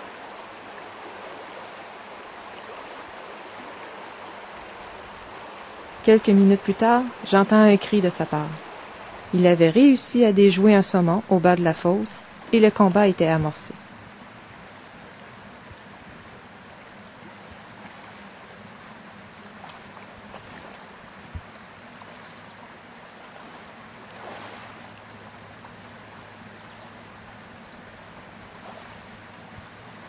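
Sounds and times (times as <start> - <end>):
river water rushing: 0.0 - 30.0.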